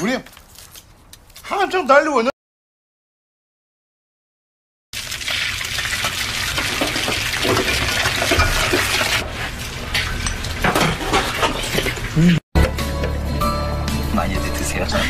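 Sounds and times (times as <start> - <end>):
eggs sizzling in hot oil: 5.0 - 12.1.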